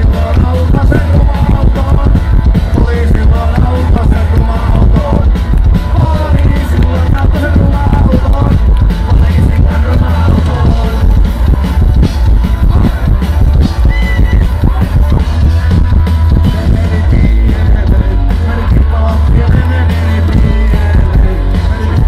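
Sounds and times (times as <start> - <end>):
man singing: 0.0 - 22.0
punk rock band playing live: 0.0 - 22.0.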